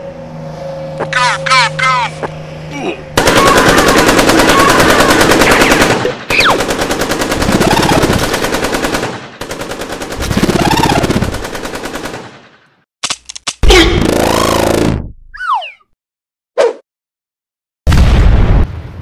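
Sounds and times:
cartoon automatic gunfire: 3.2s - 12.4s, 13.7s - 15.0s.

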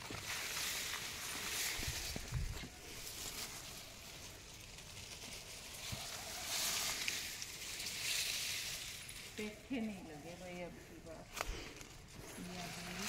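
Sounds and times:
leaves and stalks rustling: 0.0s - 13.0s.

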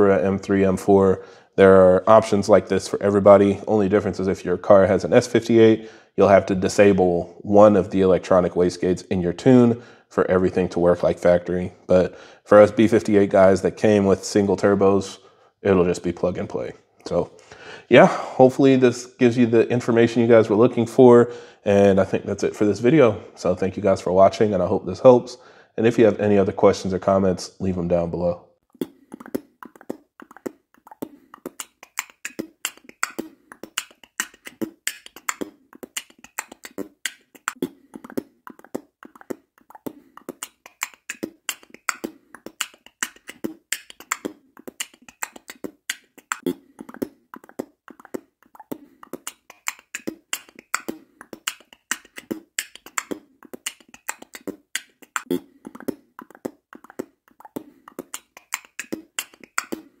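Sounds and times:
percussive music beat: 28.8s - 59.9s.

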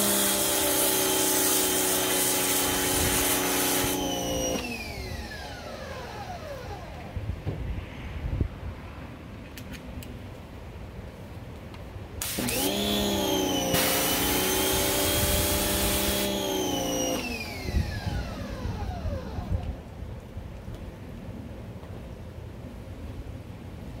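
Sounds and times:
pressure washer motor whining: 0.0s - 7.2s, 12.2s - 19.9s
water jet hissing: 12.2s - 17.6s.

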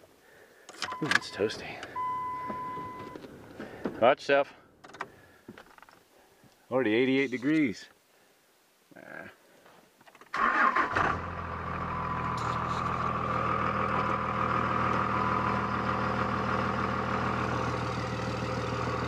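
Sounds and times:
truck engine starting and idling: 10.3s - 19.0s.

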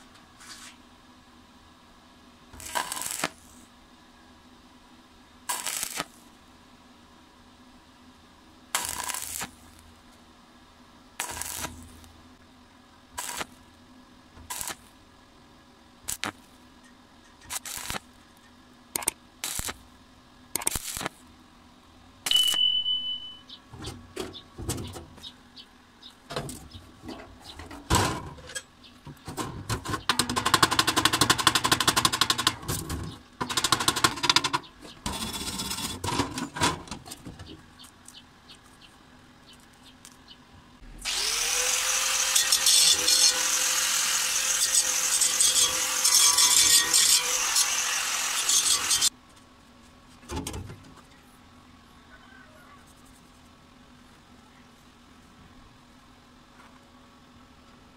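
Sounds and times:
welding arc bursts: 2.6s - 3.6s, 5.5s - 6.2s, 8.7s - 9.8s, 11.2s - 12.1s, 13.2s - 13.6s, 14.4s - 14.9s, 16.0s - 16.4s, 17.4s - 18.1s, 19.0s - 19.8s, 20.6s - 21.2s, 40.9s - 49.1s.

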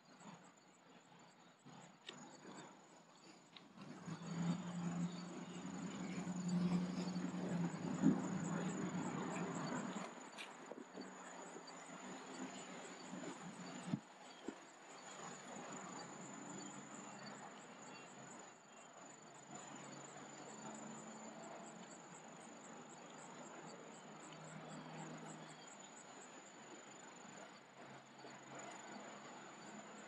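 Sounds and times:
outdoor background hiss: 0.0s - 30.0s.

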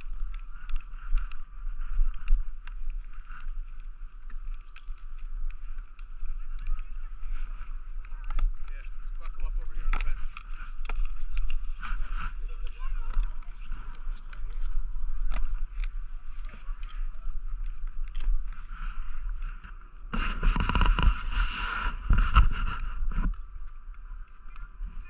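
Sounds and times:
wind rumbling on microphone: 0.0s - 25.0s
snowboard sliding over snow: 20.0s - 23.3s
snowboard edge scraping snow: 20.1s - 23.3s.

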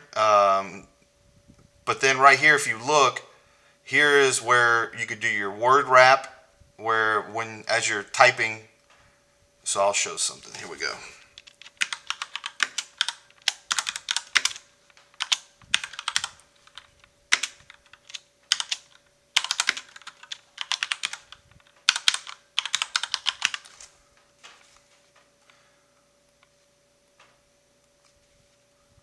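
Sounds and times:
computer keyboard typing: 11.4s - 23.8s.

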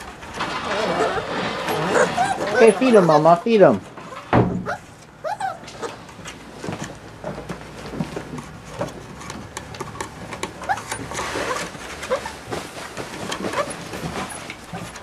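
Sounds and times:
puppies whimpering: 0.5s - 3.4s, 4.1s - 6.0s
puppy high whines: 0.6s - 2.9s, 4.1s - 6.0s.

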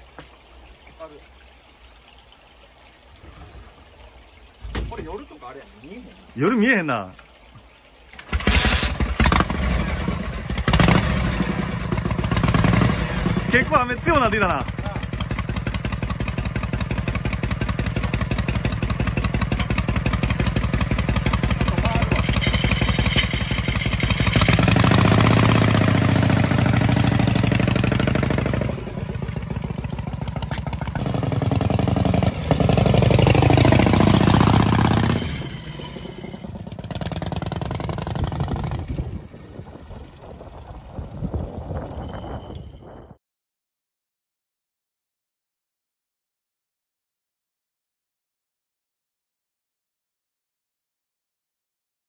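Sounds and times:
motorcycle engine idling and revving: 8.2s - 42.9s.

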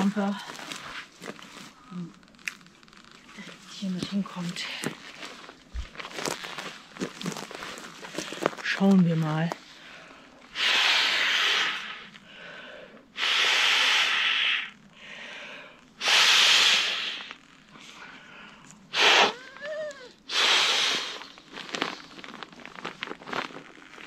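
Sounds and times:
person drawing breath: 9.8s - 21.3s
puffs of breath into valve: 10.6s - 17.3s, 18.9s - 19.4s, 20.3s - 21.2s.

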